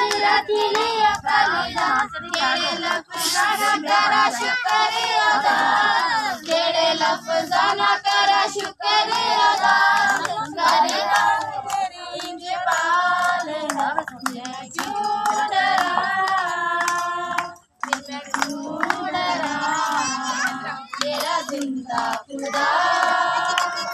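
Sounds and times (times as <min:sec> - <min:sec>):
people clapping: 0:00.0 - 0:23.9
women and children singing: 0:00.0 - 0:23.9.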